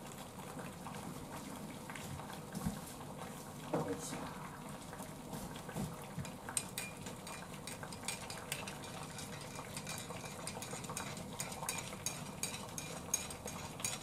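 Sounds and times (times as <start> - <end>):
teaspoon clinking in a ceramic mug: 6.6 - 14.0.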